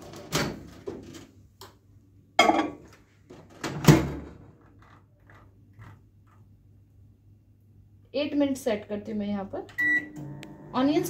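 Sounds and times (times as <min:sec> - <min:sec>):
glass bowl clunking: 0:02.4 - 0:02.8.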